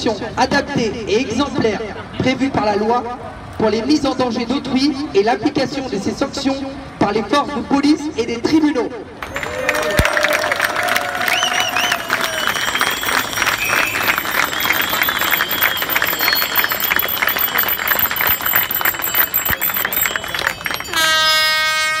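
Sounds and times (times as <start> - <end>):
crowd applauding and cheering: 9.2 - 21.6
loud horn blast: 20.9 - 22.0.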